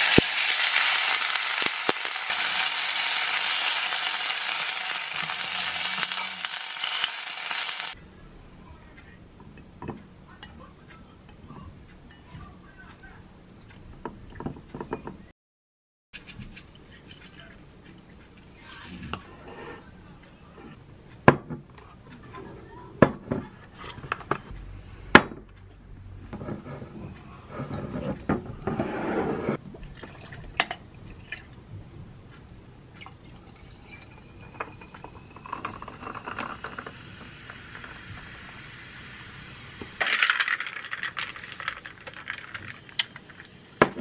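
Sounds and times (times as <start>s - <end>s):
liquid pouring into glass of ice: 29.8s - 31.5s.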